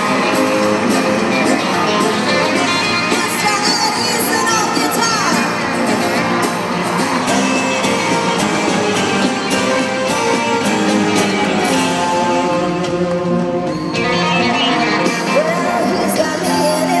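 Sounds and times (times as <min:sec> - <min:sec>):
live country-rock band: 0:00.0 - 0:17.0.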